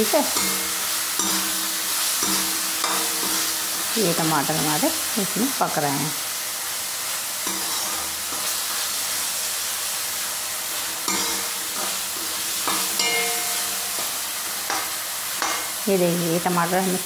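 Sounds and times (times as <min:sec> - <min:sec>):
tomatoes sizzling in hot oil: 0:00.0 - 0:17.0
metal ladle scraping a pan: 0:00.4 - 0:04.0, 0:07.4 - 0:08.9, 0:10.8 - 0:15.8.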